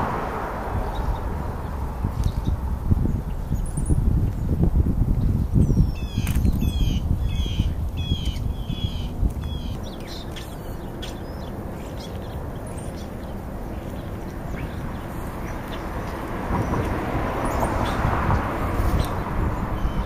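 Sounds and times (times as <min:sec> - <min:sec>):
steady low rumble: 0:00.0 - 0:20.0
vultures pecking and tearing: 0:06.2 - 0:06.7.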